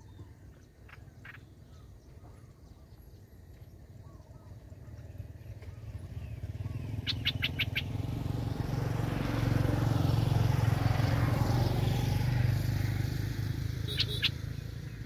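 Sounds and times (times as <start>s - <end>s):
bird chirping: 0.0s - 8.5s, 13.8s - 15.0s
vehicle engine humming: 3.1s - 15.0s.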